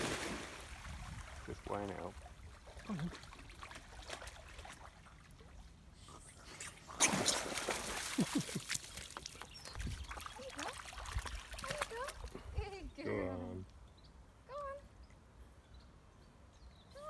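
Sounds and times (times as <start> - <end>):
dog splashing in water: 7.0 - 12.4.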